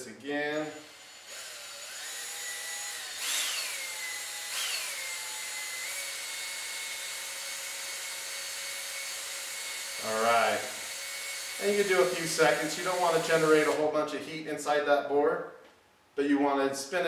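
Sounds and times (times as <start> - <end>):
cordless drill motor whine: 0.5 - 13.8.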